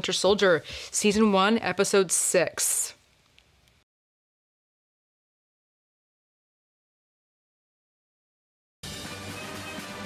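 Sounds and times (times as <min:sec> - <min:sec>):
music: 0:08.8 - 0:10.0.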